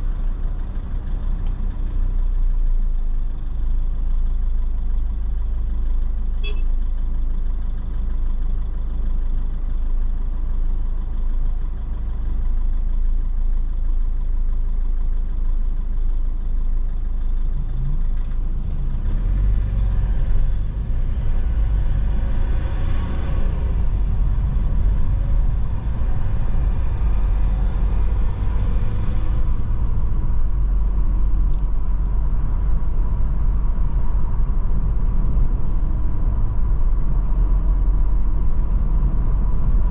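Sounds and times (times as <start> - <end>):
car engine idling: 0.0 - 19.0, 23.4 - 39.9
road noise: 0.0 - 39.9
car pulling away: 17.4 - 39.9.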